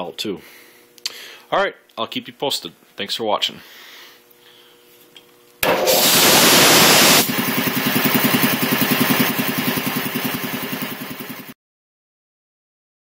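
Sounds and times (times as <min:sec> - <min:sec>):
air compressor rushing hiss: 0:05.6 - 0:09.2
air compressor chugging: 0:05.6 - 0:11.5.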